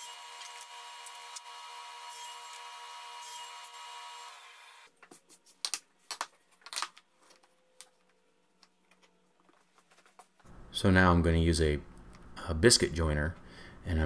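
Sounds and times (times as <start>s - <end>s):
wooden panels clicking and knocking: 5.6s - 8.2s.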